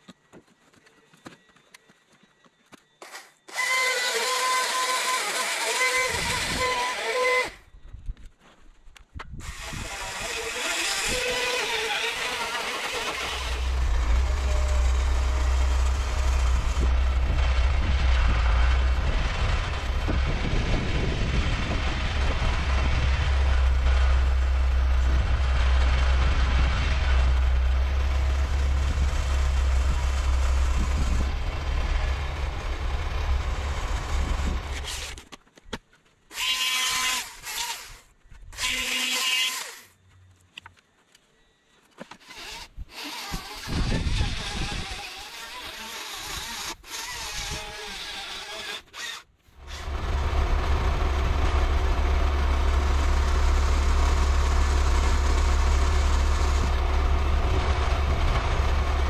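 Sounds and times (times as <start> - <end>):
chainsaw bursts: 3.0 - 7.6, 9.4 - 19.0, 36.3 - 40.0, 42.2 - 59.0
diesel tractor engine humming: 12.1 - 35.0, 49.6 - 59.0.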